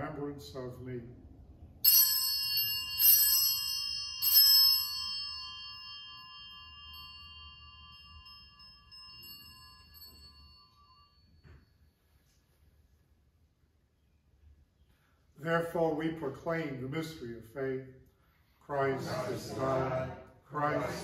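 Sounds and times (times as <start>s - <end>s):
altar bell ringing: 1.8s - 12.3s.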